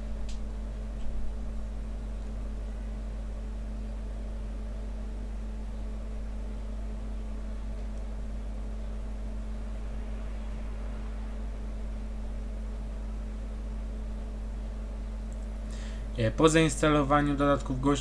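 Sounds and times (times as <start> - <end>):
low hum with faint hiss: 0.0 - 18.0.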